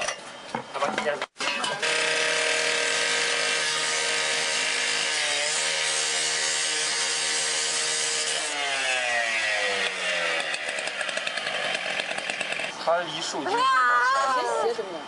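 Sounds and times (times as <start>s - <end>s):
power cutting tool cutting pipe: 1.8s - 12.8s.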